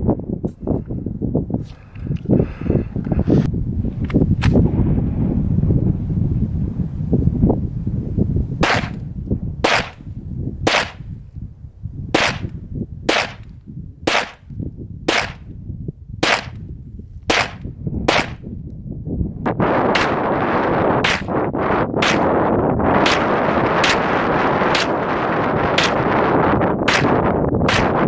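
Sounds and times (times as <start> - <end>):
wind rumbling on microphone: 0.0 - 28.0
rifle gunshots: 8.6 - 9.0, 9.6 - 10.0, 10.7 - 11.0, 12.2 - 12.5, 13.1 - 13.4, 14.1 - 14.4, 15.1 - 15.4, 16.2 - 16.6, 17.3 - 18.4, 19.9 - 20.4, 21.0 - 21.4, 22.0 - 22.4, 23.0 - 25.0, 25.8 - 26.1, 26.9 - 28.0.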